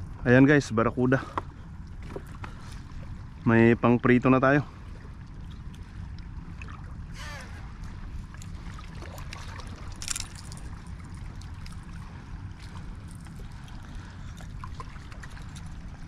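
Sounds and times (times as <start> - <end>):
steady low rumble: 0.0 - 16.0
small waves lapping against rocks: 4.8 - 16.0.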